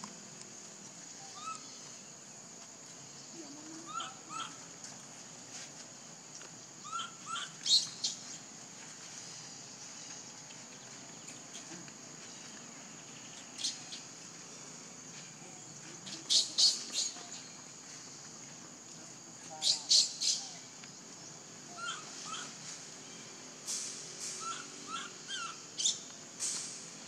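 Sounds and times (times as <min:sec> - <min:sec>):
steady high hiss: 0:00.0 - 0:27.0
small animal chirping: 0:06.8 - 0:08.3, 0:19.6 - 0:20.6, 0:21.7 - 0:22.6, 0:24.4 - 0:26.1.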